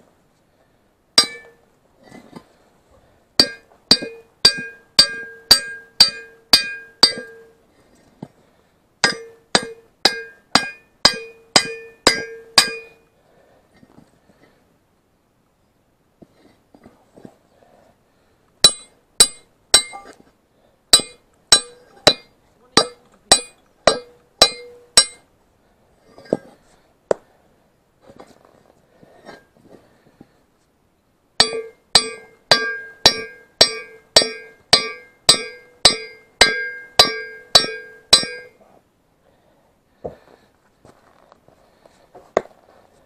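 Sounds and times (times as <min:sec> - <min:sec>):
hammer striking metal: 0:01.2 - 0:01.6, 0:03.4 - 0:07.5, 0:09.0 - 0:13.0, 0:18.6 - 0:20.2, 0:21.0 - 0:25.3, 0:31.4 - 0:38.6.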